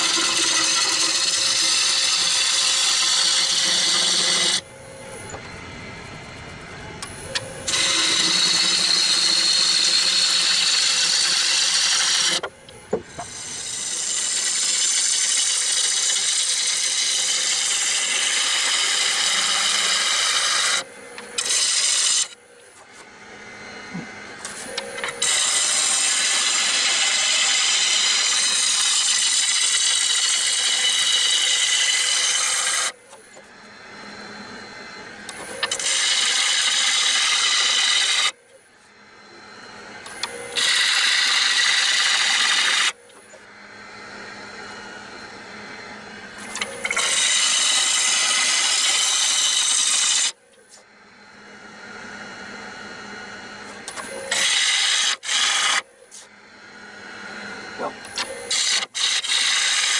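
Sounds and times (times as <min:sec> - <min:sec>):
lathe running: 0:00.0 - 0:59.9
gouge hissing on spinning wood: 0:25.2 - 0:32.8.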